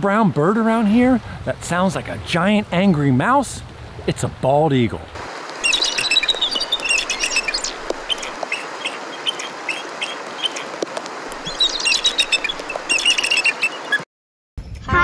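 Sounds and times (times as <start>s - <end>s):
steady background hiss: 0.2s - 14.0s
eagle chittering calls: 5.6s - 14.0s.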